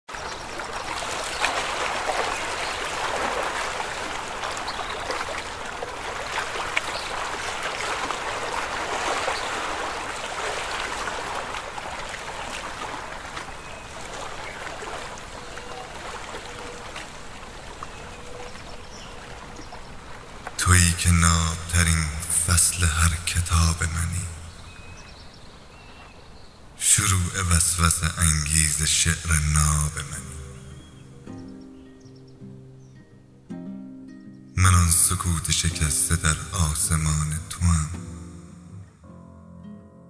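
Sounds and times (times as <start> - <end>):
small water splashes: 0.1 - 20.6
shallow water babbling: 0.1 - 33.5.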